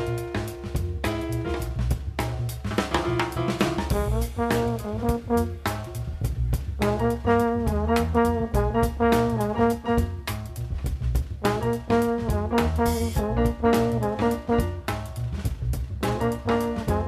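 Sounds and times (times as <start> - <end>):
drum kit: 0.0 - 17.0
upright bass: 0.0 - 17.0
trombone melody: 3.9 - 6.2, 6.8 - 10.6, 11.4 - 15.2, 16.0 - 17.0.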